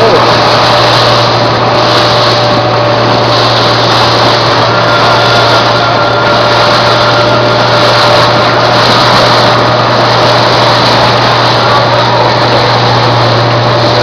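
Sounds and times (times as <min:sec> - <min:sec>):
boat engine running: 0:00.0 - 0:14.0
water rushing along hull: 0:00.0 - 0:14.0.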